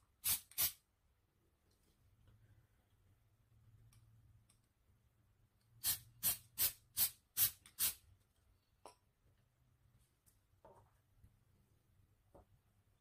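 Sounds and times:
aerosol spray bursts: 0:00.2 - 0:00.8, 0:05.8 - 0:08.0.

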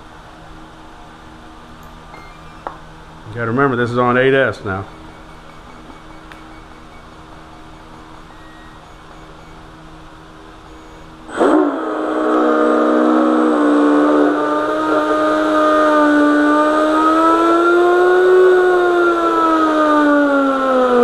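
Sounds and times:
electric motor whine: 0:04.7 - 0:21.0.

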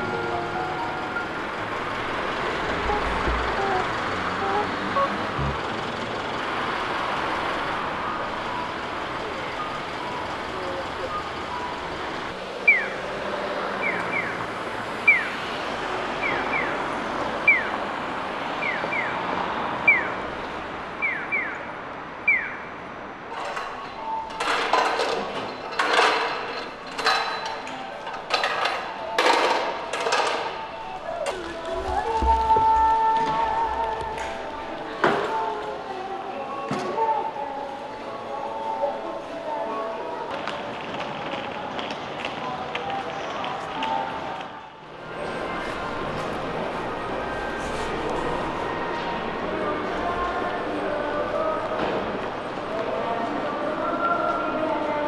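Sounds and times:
street background hum: 0:00.0 - 0:55.0
loud uneven sounds: 0:23.3 - 0:36.8.

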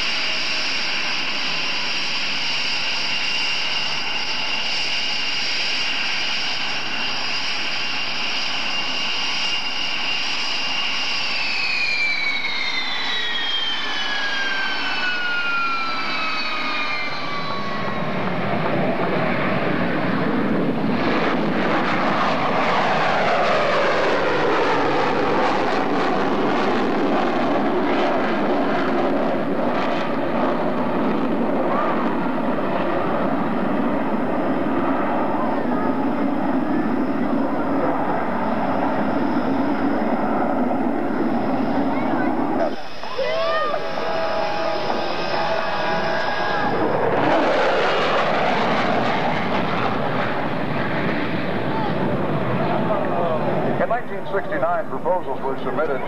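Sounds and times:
jet engines whining: 0:00.0 - 0:56.0
jet roar in flight: 0:00.0 - 0:56.0.

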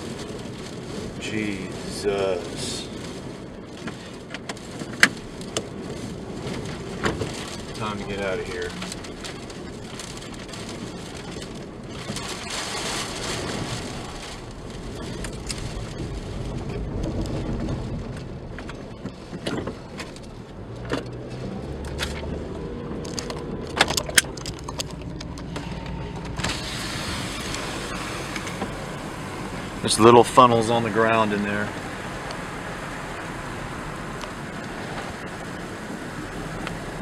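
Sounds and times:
car engine running: 0:00.0 - 0:37.0
wind on microphone: 0:08.8 - 0:20.0
sharp clicks and knocks: 0:23.0 - 0:26.5.

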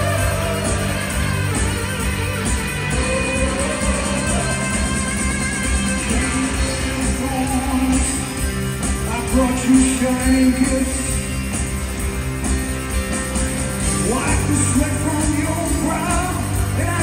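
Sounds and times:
live rock band playing: 0:00.0 - 0:17.0.

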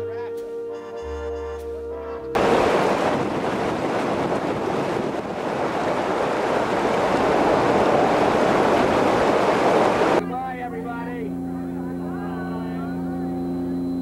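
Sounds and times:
jet engines roaring: 0:02.4 - 0:10.2.

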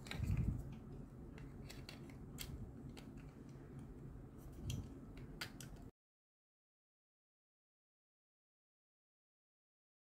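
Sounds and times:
plastic clicks: 0:00.0 - 0:03.9, 0:04.6 - 0:05.9.

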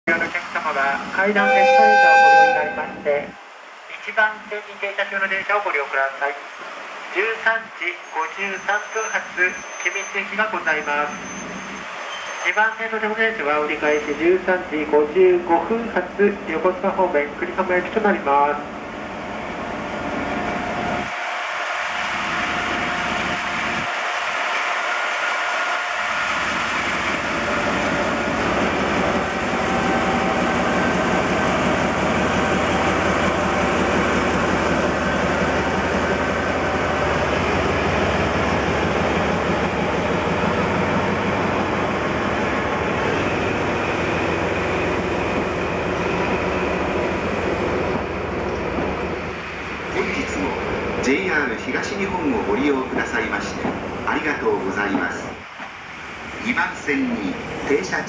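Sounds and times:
train wheels on rails: 0:18.7 - 0:58.0
locomotive engine working: 0:21.8 - 0:51.1.

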